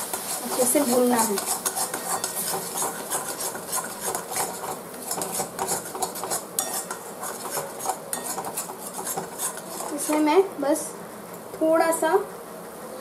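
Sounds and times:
metal spatula scraping a pan: 0.0s - 10.3s.

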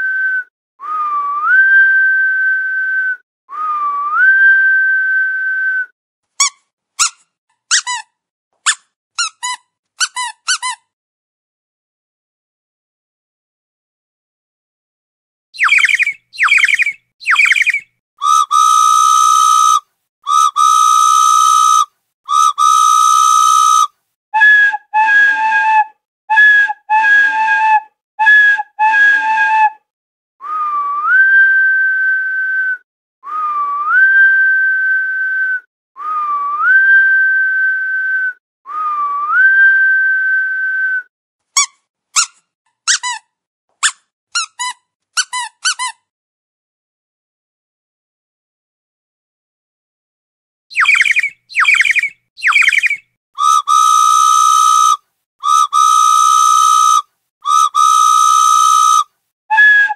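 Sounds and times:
falling whistles: 0.0s - 5.9s, 15.6s - 25.4s, 30.4s - 41.1s, 50.7s - 59.9s
long steady whistle tones: 0.0s - 5.9s, 15.6s - 25.8s, 30.4s - 41.1s, 50.7s - 59.9s
rising whistles: 15.6s - 19.8s, 50.7s - 59.0s
short chirping whistles: 15.6s - 23.9s, 50.7s - 59.9s.

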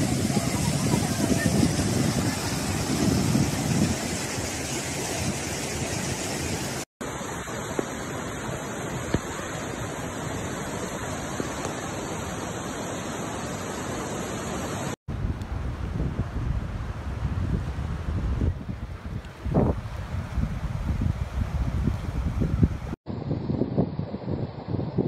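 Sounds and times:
floodwater rushing: 0.0s - 15.0s.

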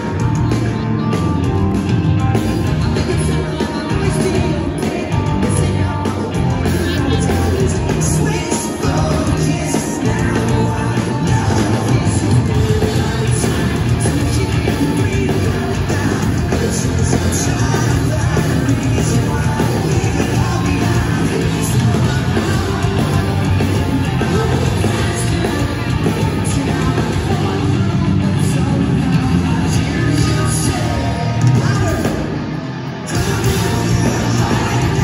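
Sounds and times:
bass guitar: 0.0s - 35.0s
drums: 0.0s - 35.0s
electric guitars: 0.0s - 35.0s
singer singing into microphone: 0.0s - 35.0s.

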